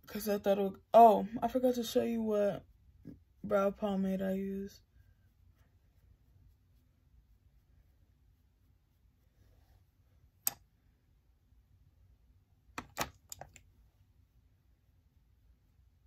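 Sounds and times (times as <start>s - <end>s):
makeup items clicking: 12.8s - 13.7s.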